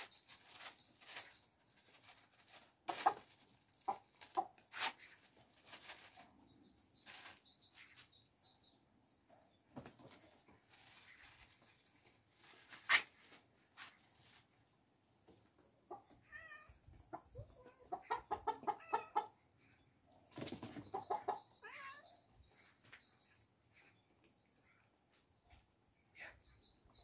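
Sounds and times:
hens clucking: 2.5 - 6.4, 16.8 - 19.4, 20.3 - 21.6.

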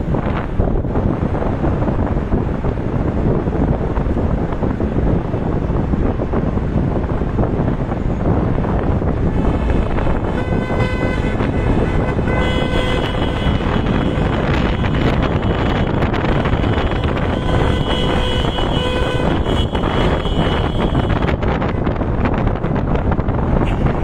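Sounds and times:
wind and road noise: 0.0 - 24.0
vehicle horns honking: 9.3 - 21.9, 23.6 - 24.0.

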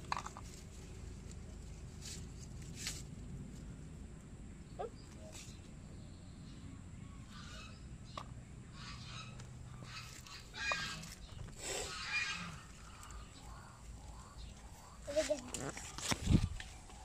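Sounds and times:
fowl harsh calls: 8.7 - 15.0.

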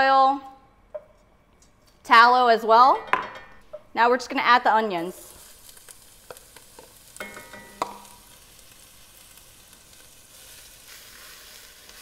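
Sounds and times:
onions sizzling in a pot: 4.6 - 12.0.

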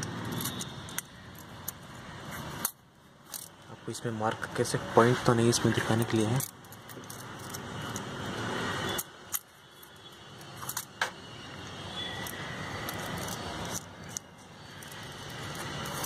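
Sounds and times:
metal tools clicking on engine: 0.0 - 3.6, 6.0 - 8.1, 8.9 - 11.2, 12.1 - 16.0.

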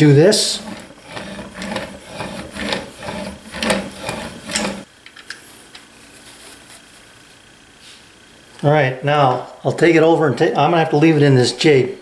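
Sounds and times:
chisel rasping on sharpening stone: 0.5 - 4.9.

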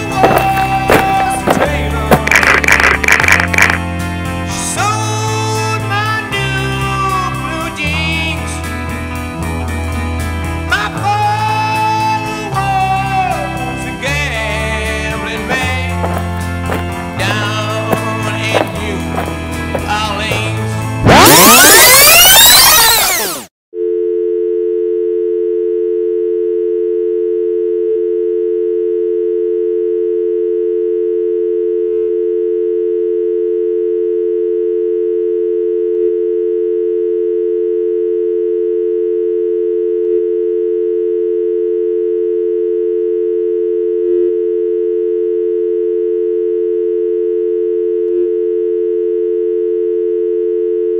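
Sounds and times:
telephone dial tone: 2.3 - 3.8, 23.8 - 50.9.

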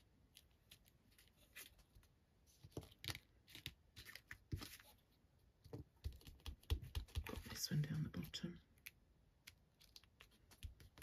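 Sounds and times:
paper rustling and tapping: 5.6 - 7.7, 9.8 - 11.0.

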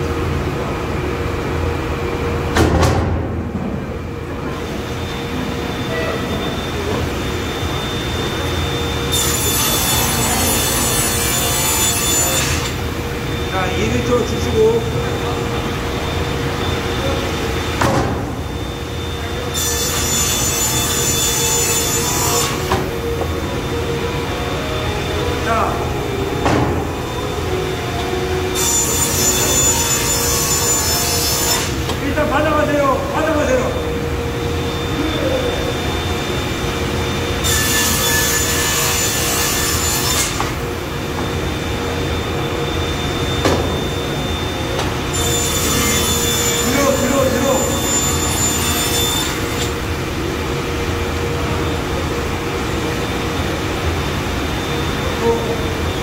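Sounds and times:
panel saw humming: 4.5 - 35.1, 35.7 - 50.1
saw blade cutting wood: 9.1 - 12.8, 19.5 - 22.9, 28.6 - 32.0, 37.4 - 40.6, 45.1 - 49.8.

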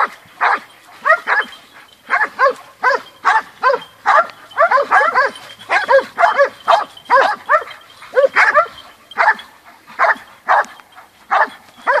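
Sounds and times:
dogs barking and yelping: 0.0 - 12.0.

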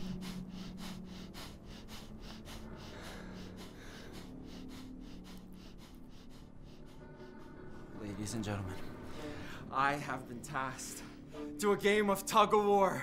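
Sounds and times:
pulsing breathy hiss: 0.0 - 8.3.

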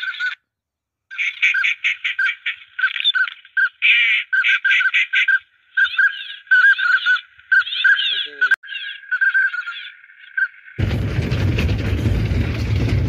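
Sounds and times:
electronic duck calls: 0.0 - 0.4, 1.1 - 10.7.

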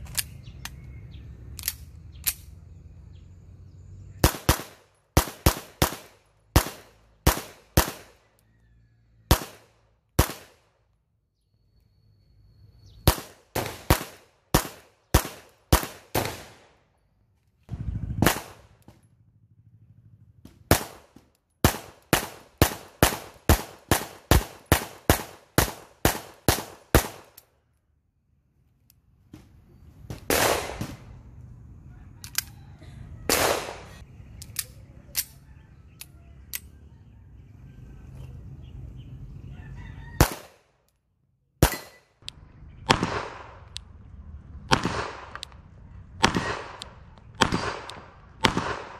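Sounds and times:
pistol shots: 4.2 - 8.2, 9.3 - 10.7, 13.0 - 16.8, 18.2 - 18.9, 20.6 - 27.4, 30.1 - 31.1, 33.3 - 34.0, 40.2 - 40.7, 41.6 - 42.1, 42.8 - 43.8, 44.7 - 45.6, 46.2 - 48.9.

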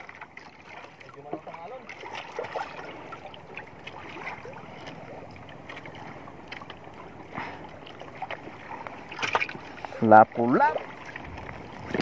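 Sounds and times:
water lapping against boat: 0.0 - 12.0
wind: 0.0 - 12.0.

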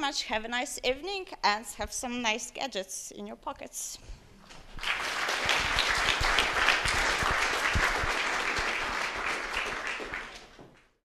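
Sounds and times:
audience applause: 4.7 - 11.0.

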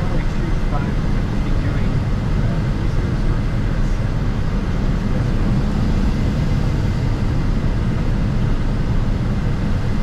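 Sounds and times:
cockpit airflow and engine rumble: 0.0 - 10.0.

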